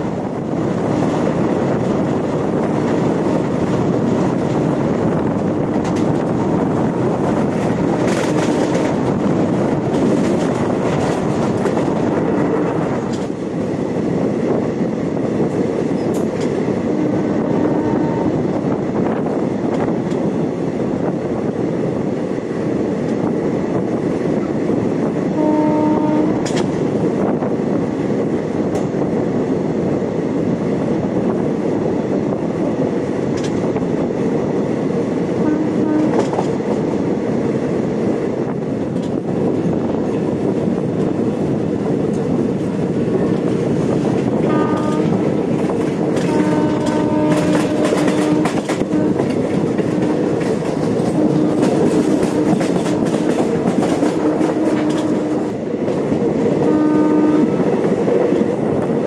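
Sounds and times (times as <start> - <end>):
train rumbling: 0.0 - 59.0
train horn: 8.0 - 8.9, 16.9 - 18.6, 25.3 - 26.7, 35.4 - 36.5, 44.4 - 45.3, 46.1 - 50.1, 51.0 - 55.5, 56.6 - 57.7.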